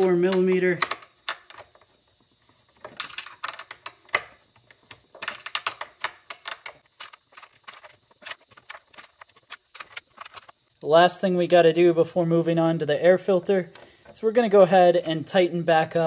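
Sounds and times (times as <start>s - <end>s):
hand tool clicking and tapping: 0.0s - 1.8s.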